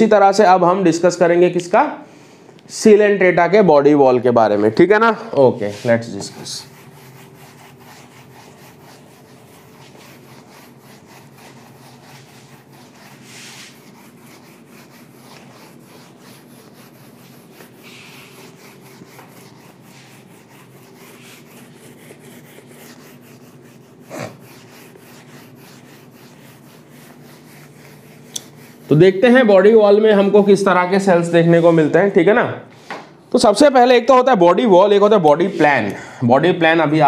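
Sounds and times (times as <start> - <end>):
duster rubbing on whiteboard: 5.4 - 32.0.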